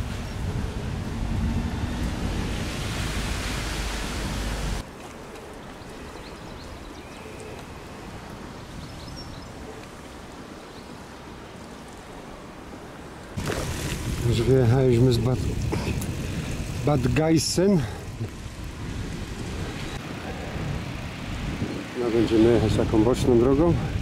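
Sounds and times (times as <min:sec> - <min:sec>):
wind buffeting microphone: 0:00.0 - 0:04.8, 0:13.3 - 0:24.0.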